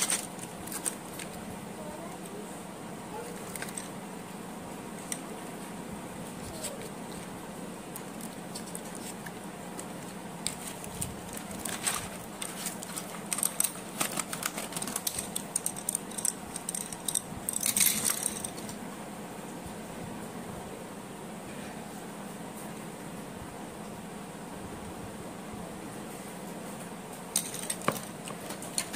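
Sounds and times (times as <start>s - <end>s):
wooden pencils clicking and rattling: 0.0s - 1.5s, 3.3s - 4.0s, 4.9s - 5.4s, 6.4s - 18.8s, 27.3s - 28.9s.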